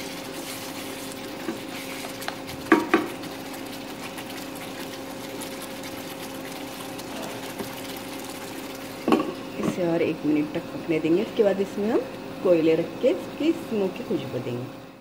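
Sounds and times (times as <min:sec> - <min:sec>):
gravy simmering and bubbling: 0:00.0 - 0:10.0
steady low hum: 0:00.0 - 0:15.0.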